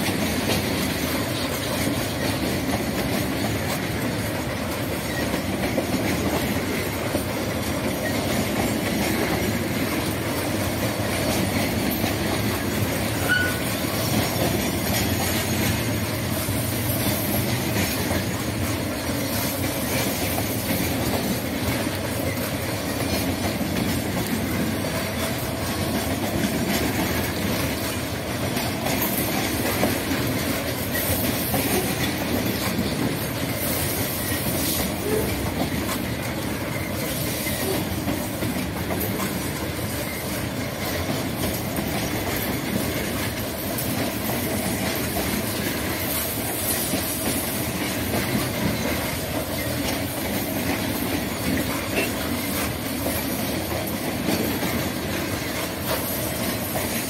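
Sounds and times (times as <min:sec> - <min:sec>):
train wheels rumbling on rail: 0:00.0 - 0:57.0
faint wheel squeal: 0:13.2 - 0:13.7.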